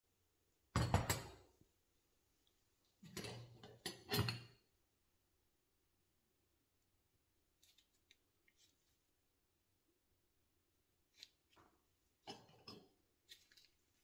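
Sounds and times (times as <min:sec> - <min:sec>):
metal stove knocking on tile floor: 0:00.8 - 0:01.3.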